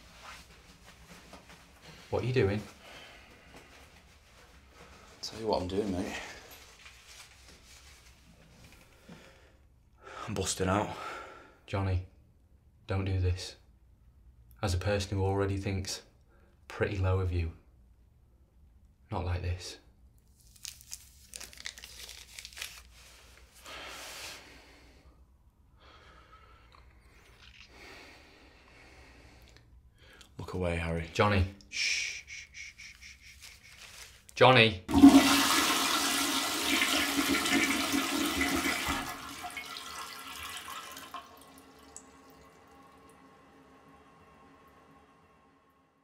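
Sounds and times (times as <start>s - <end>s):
rustling and crinkling: 0.0s - 2.1s, 3.4s - 8.9s, 20.2s - 23.6s, 33.4s - 34.3s
toilet flushing: 34.9s - 45.6s.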